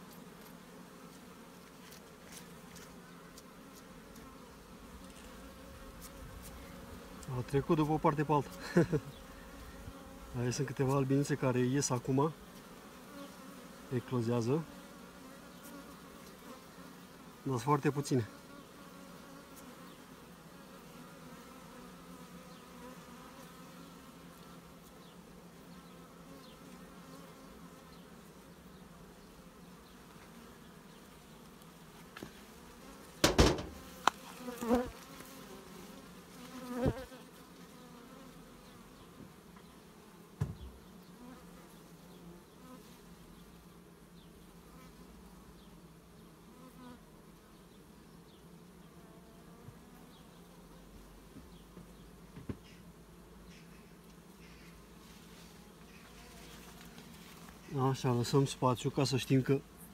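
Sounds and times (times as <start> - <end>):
bees buzzing: 0.0 - 59.9
sharp knocks: 33.2 - 33.8.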